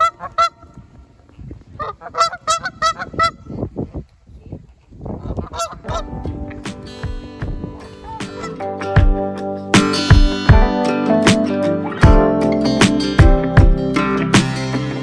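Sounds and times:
geese honking: 0:00.0 - 0:00.7, 0:01.8 - 0:03.5, 0:05.3 - 0:06.1, 0:08.0 - 0:08.8.

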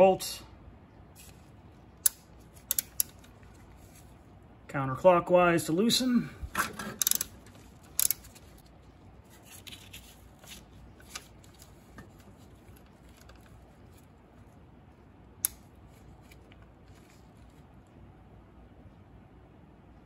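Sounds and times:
socket wrench clicking on bolts: 0:02.0 - 0:03.3, 0:06.9 - 0:08.4.

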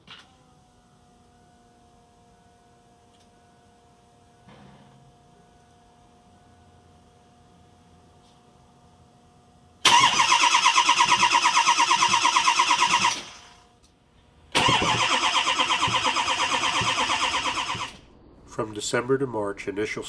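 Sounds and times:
diesel engine cranking: 0:09.8 - 0:13.6, 0:14.5 - 0:20.0.

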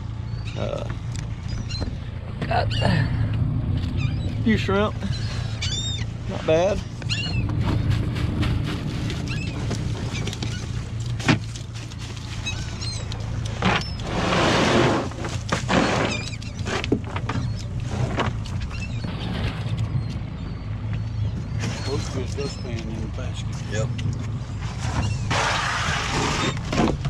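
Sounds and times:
low hum: 0:00.0 - 0:22.5
wet net rustling and dripping: 0:07.6 - 0:14.0.

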